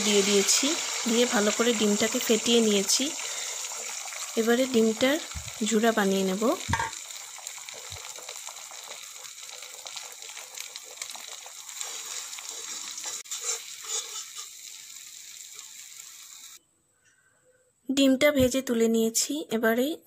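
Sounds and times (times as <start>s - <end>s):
eggs sizzling in hot oil: 0.0s - 16.6s
metal spatula scraping a pan: 11.8s - 14.6s.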